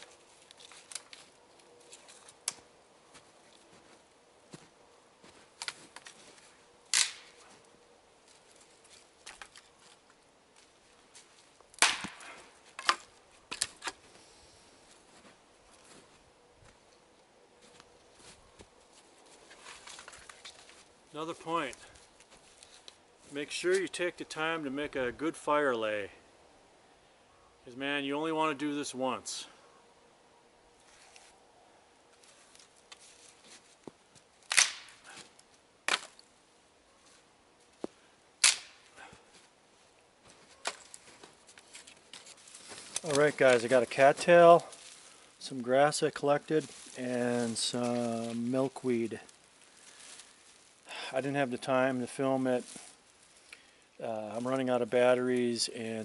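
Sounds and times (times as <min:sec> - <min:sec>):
dry sticks cracking and clattering: 0:00.0 - 0:03.8, 0:05.2 - 0:14.1, 0:17.7 - 0:23.0, 0:32.2 - 0:36.3, 0:37.8 - 0:50.9, 0:52.6 - 0:54.6.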